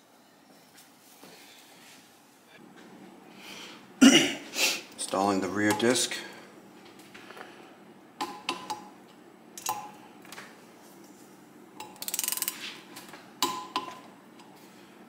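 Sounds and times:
ratchet clicking: 11.8 - 12.6.

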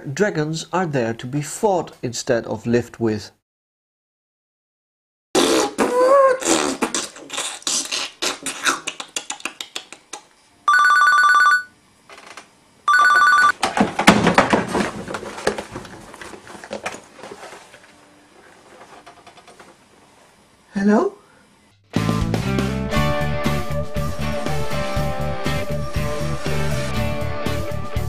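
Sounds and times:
telephone ringing: 10.7 - 11.8, 12.9 - 13.6
rapid clatter of knocks and clicks: 13.6 - 17.5, 18.6 - 19.8.

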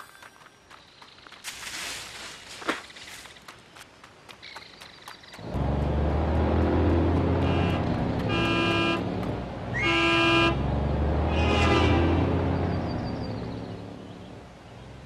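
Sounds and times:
engine rumbling: 5.4 - 15.0
vehicle horn honking: 7.3 - 9.1, 9.7 - 12.4.

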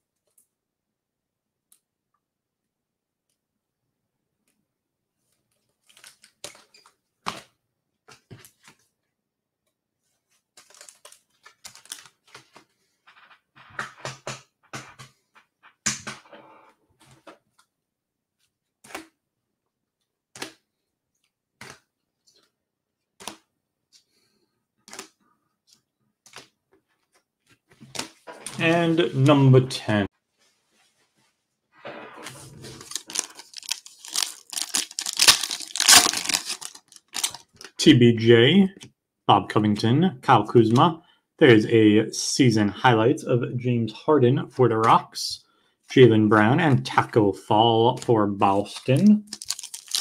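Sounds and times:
packaging rustling and crinkling: 10.6 - 12.5, 32.2 - 37.7, 48.8 - 50.0.

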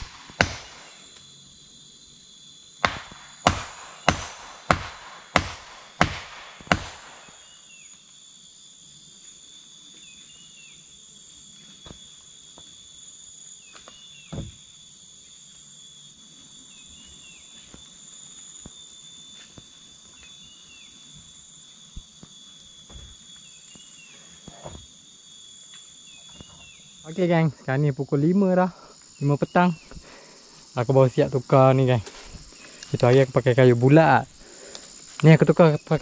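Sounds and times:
forest insect drone: 0.0 - 36.0
insect chirps: 0.0 - 36.0
dull thump: 14.3 - 14.6.

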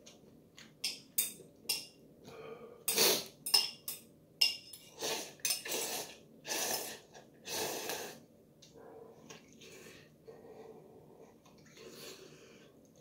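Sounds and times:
slurping broth: 4.9 - 8.2.

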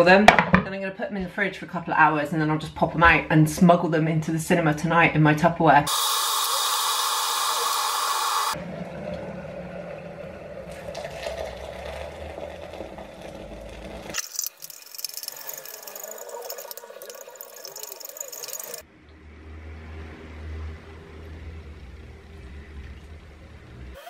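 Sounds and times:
liquid pouring: 6.3 - 18.8
water pouring into glass jug: 9.1 - 18.8
spoon stirring and clinking: 14.2 - 18.8.

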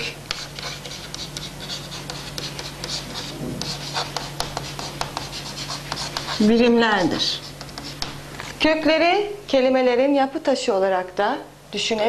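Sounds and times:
chalk scratching on a chalkboard: 0.0 - 8.6.

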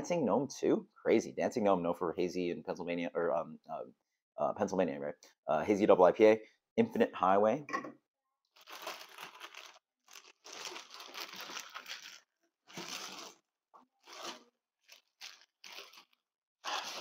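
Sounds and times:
plastic bag crinkling: 8.6 - 17.0.

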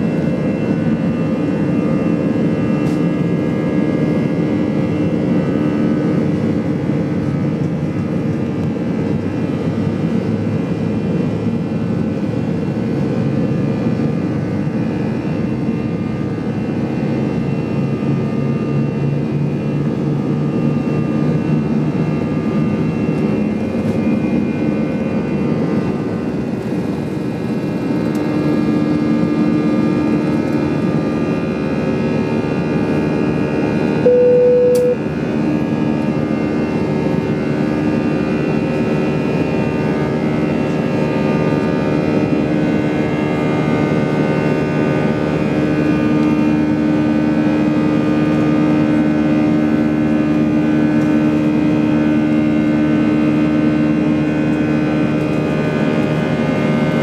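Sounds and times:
jet engine roar in cabin: 0.0 - 57.0
short steady tone: 34.0 - 35.0.

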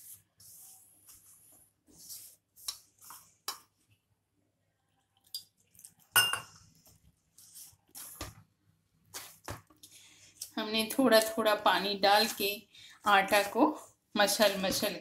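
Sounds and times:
hands kneading dough in steel bowl: 0.0 - 3.9, 10.4 - 15.0.

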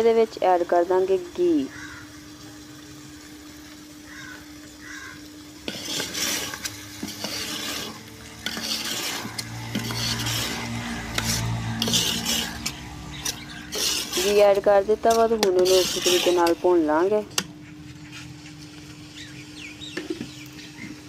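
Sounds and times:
metal ladle scraping pot: 5.6 - 17.5.

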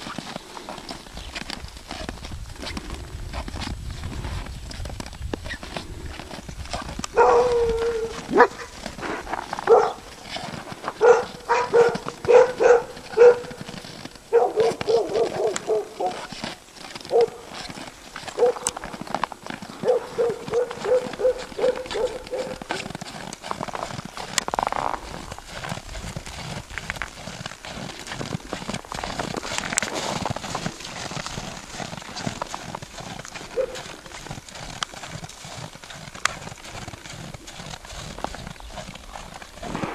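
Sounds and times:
dog barking: 7.1 - 10.1, 11.0 - 13.6, 14.3 - 16.2, 17.1 - 17.5, 18.4 - 18.7, 19.8 - 22.8, 33.6 - 33.8.

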